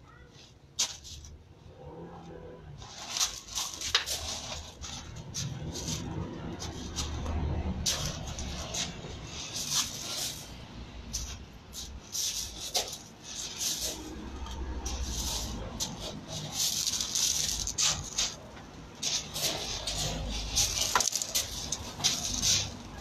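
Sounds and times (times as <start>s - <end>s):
feet shuffling on gravel: 2.8s - 7.2s, 11.2s - 23.0s.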